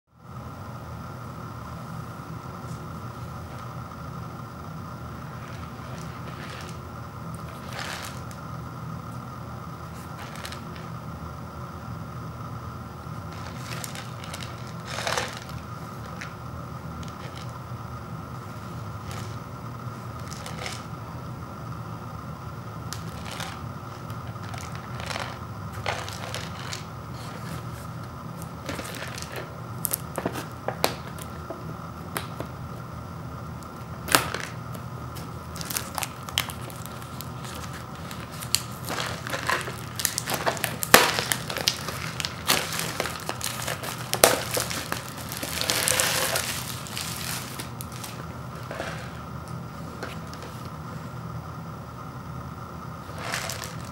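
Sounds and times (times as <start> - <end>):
plastic wrap crinkling: 13.3 - 17.6, 22.9 - 31.3, 35.2 - 49.3, 53.1 - 53.9.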